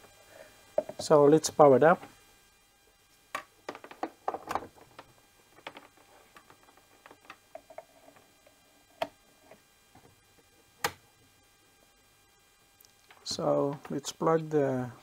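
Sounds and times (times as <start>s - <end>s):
small plastic clicks and rustles: 3.7s - 8.2s.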